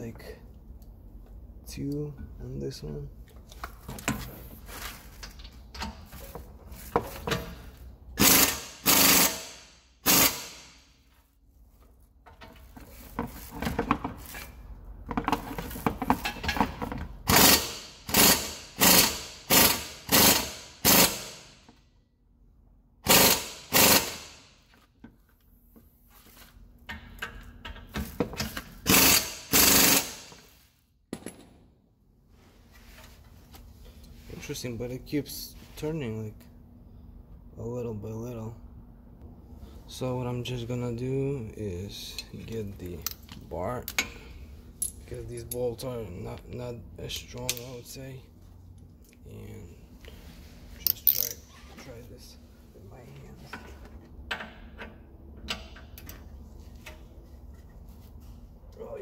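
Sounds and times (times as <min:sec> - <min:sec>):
impact wrench hammering: 0:08.2 - 0:10.8, 0:17.3 - 0:21.6, 0:23.1 - 0:24.4, 0:28.8 - 0:30.4.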